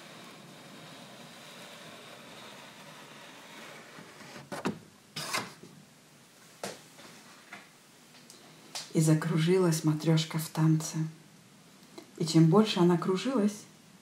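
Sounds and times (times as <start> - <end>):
paper card sliding rustle: 0.0 - 5.7.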